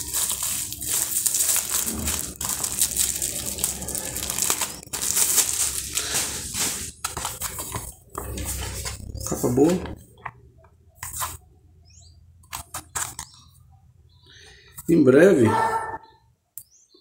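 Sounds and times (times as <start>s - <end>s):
plastic wrap crinkling: 0.0s - 10.3s, 12.5s - 13.4s
book pages fanned through: 0.0s - 11.5s, 12.5s - 13.4s.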